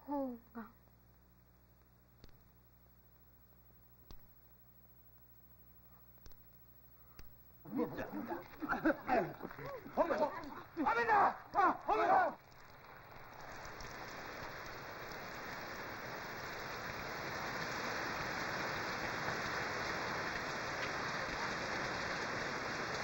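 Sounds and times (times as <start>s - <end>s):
heavy rain pouring: 7.7s - 23.0s.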